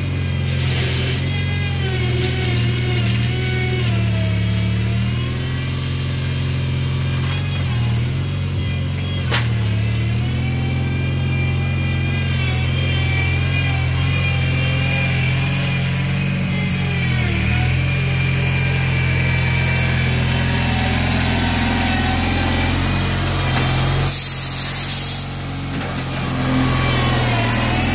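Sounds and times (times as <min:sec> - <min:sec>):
backhoe engine running: 0:00.0 - 0:27.9
short hiss: 0:24.1 - 0:25.4.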